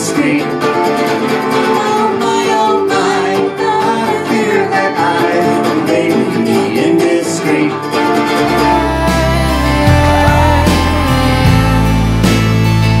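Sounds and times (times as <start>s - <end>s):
acoustic guitar strumming: 0.0s - 13.0s
person singing: 0.0s - 13.0s
ukulele strumming: 0.0s - 13.0s
deep steady bass note: 8.8s - 13.0s.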